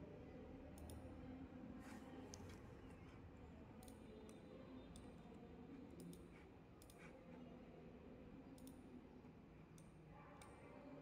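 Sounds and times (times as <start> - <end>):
faint computer mouse clicks: 6.0 - 6.2, 8.6 - 8.8.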